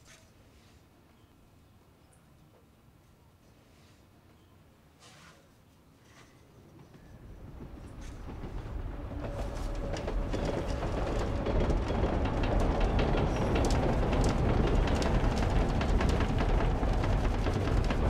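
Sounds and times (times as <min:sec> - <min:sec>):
low rumble with clattering: 0:06.7 - 0:18.0.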